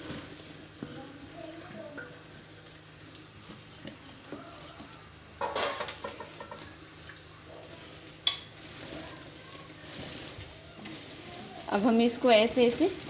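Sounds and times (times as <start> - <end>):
cloth rustling: 8.4 - 13.0.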